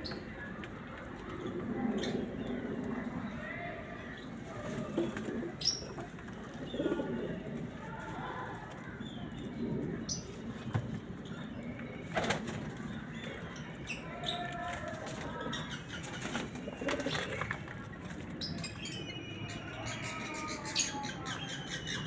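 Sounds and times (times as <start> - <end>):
pigeons cooing: 4.4 - 7.6, 15.0 - 17.9.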